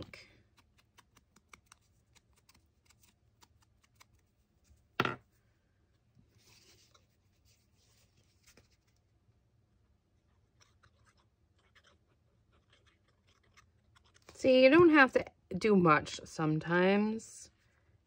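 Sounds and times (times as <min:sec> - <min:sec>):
tool knocking on mat: 0:05.0 - 0:05.2
paper rustling: 0:06.3 - 0:09.0.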